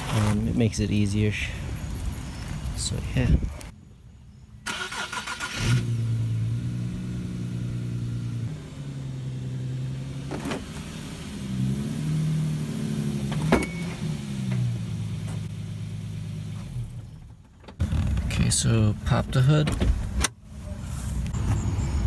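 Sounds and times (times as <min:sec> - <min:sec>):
car engine at low revs: 0:05.7 - 0:21.6.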